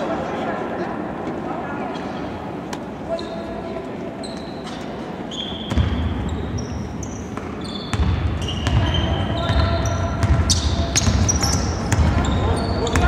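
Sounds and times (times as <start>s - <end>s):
sneaker squeaks on hardwood: 4.2s - 13.0s
basketball dribbling: 7.9s - 13.0s.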